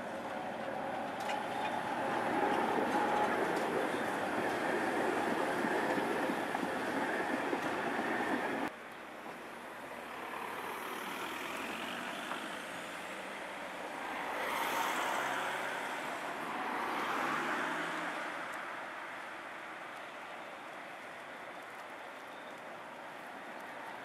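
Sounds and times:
tram running on rails: 0.0s - 24.0s
cars driving past: 9.9s - 20.0s.

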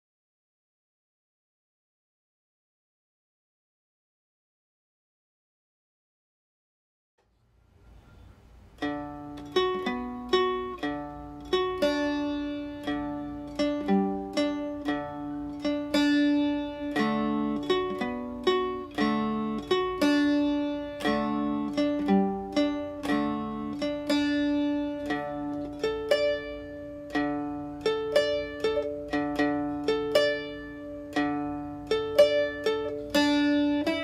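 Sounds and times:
plucked string melody: 8.0s - 34.0s.

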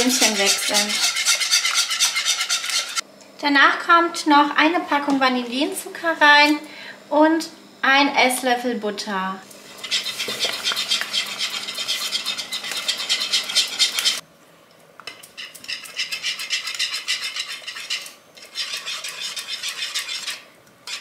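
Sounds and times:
whisk scraping pan: 0.0s - 3.0s, 9.6s - 14.2s, 15.2s - 21.0s.

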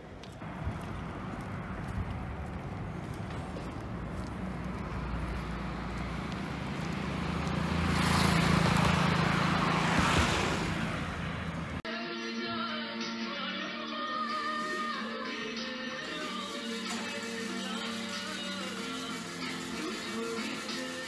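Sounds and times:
road traffic hum: 0.0s - 11.8s
vehicle passing: 0.4s - 11.8s.

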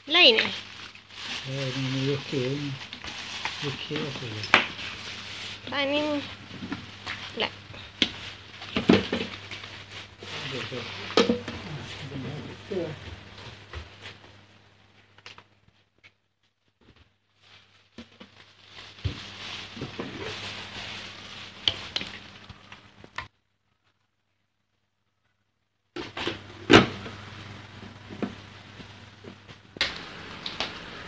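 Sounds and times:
plastic packaging crinkling: 0.1s - 11.9s, 17.2s - 23.2s.

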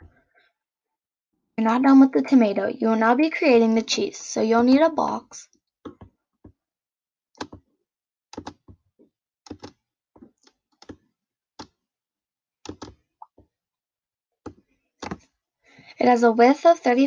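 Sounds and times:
computer mouse clicking: 7.4s - 7.6s, 8.4s - 8.7s, 9.5s - 9.8s, 12.7s - 13.0s, 14.5s - 15.2s.

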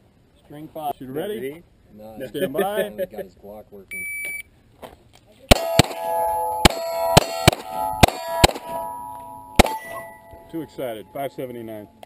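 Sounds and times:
rapid pistol shots: 5.5s - 8.8s, 9.6s - 10.1s
steel target plates ringing: 5.5s - 12.0s.

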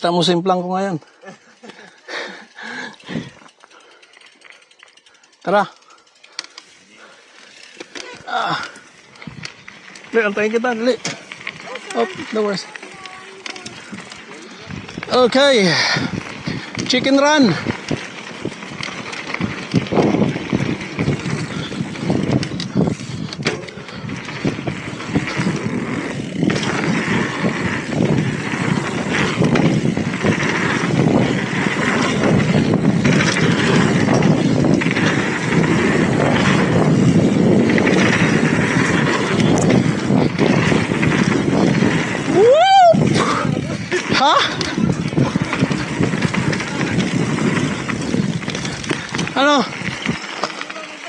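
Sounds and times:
bike knocking and rattling: 0.0s - 51.0s
tyres rolling on dirt: 0.1s - 51.0s
wind rushing over microphone: 9.1s - 12.5s, 13.6s - 50.4s.

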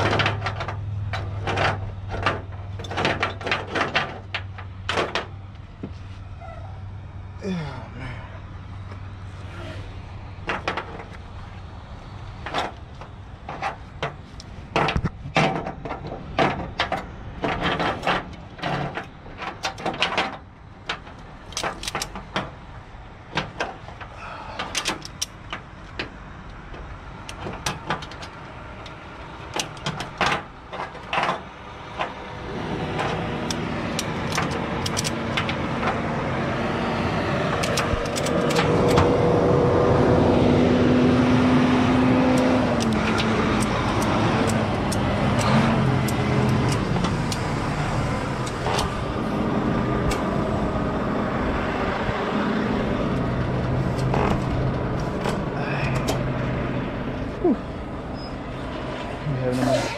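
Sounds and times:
engine hum: 0.0s - 59.9s
metallic ratchet clicks and clanks: 33.4s - 36.0s, 37.6s - 39.0s.

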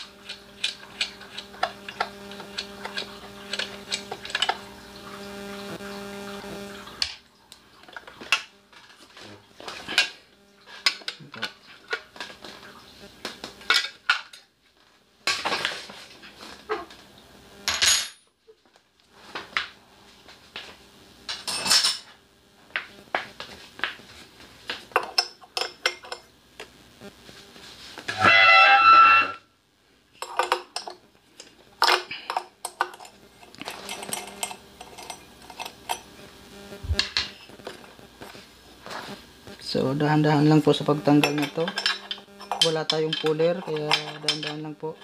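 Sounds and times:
metal parts and tools clinking: 41.3s - 44.6s.

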